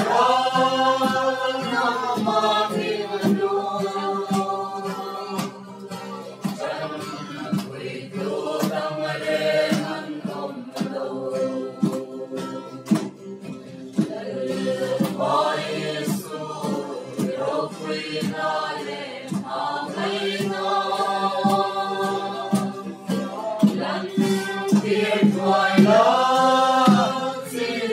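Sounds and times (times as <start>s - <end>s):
acoustic guitar: 0.0s - 27.9s
group singing a hymn: 0.0s - 27.9s
handclaps: 0.0s - 27.9s
barrel drum beating: 20.2s - 27.3s.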